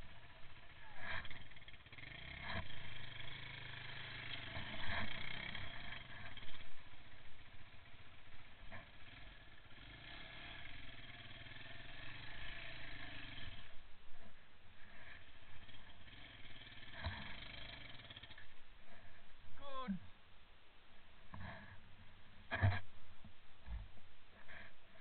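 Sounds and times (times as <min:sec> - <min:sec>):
off-road vehicle engine running: 0:00.0 - 0:20.2, 0:21.2 - 0:25.0.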